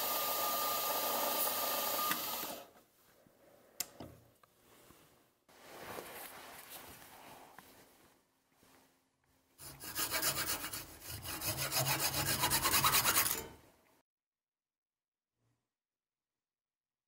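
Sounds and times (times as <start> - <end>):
hacksaw cutting metal rod: 9.6 - 13.6.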